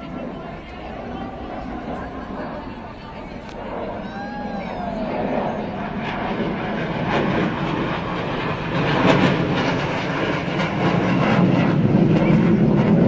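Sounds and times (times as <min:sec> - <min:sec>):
jet flying overhead: 0:00.0 - 0:13.0.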